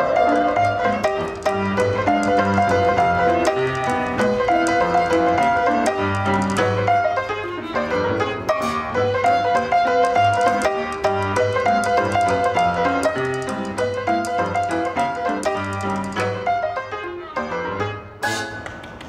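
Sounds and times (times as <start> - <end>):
instrumental piano music: 0.0 - 19.0.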